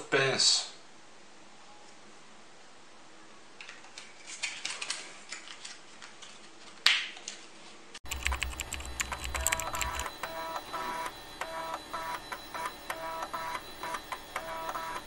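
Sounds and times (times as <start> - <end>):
typewriter typing sound effect: 8.0 - 15.0.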